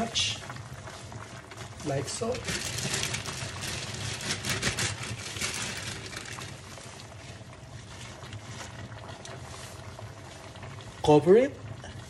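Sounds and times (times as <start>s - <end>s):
soup simmering and bubbling: 0.0s - 12.0s
leaves and plastic bag rustling: 1.5s - 9.8s.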